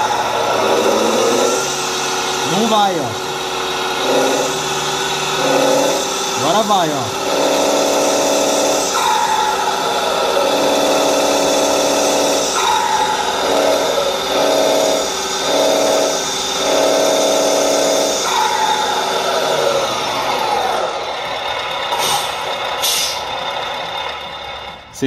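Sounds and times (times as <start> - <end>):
simulated diesel engine revving: 0.0 - 25.0
turbo whistle: 7.9 - 19.6
short air hisses: 22.0 - 23.3.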